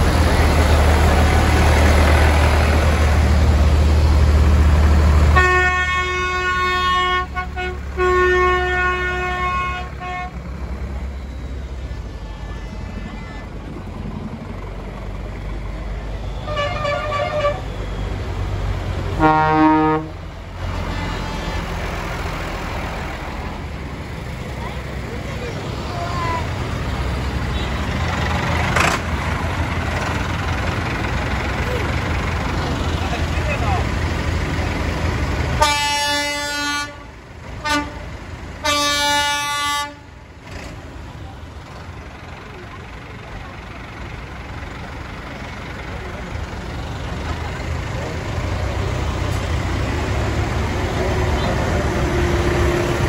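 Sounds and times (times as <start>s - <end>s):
diesel tractor engines running: 0.0s - 53.0s
loud low horn blast: 5.2s - 10.4s, 16.3s - 17.8s, 19.1s - 22.0s, 35.6s - 40.1s.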